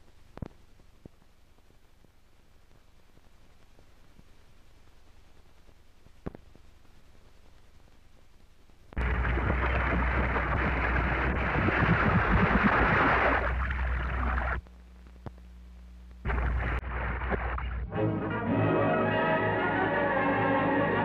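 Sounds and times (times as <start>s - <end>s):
low hum: 0.0s - 21.0s
water splashing and rushing: 9.0s - 14.6s, 16.3s - 17.9s.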